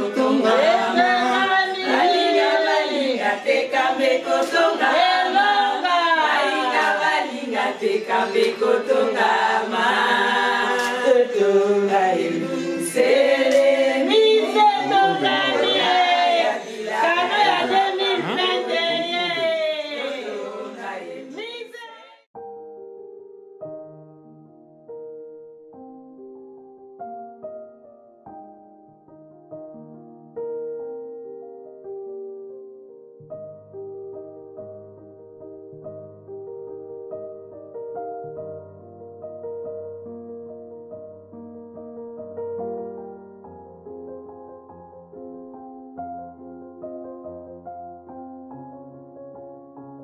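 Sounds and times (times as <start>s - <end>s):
women singing a cappella: 0.0s - 22.2s.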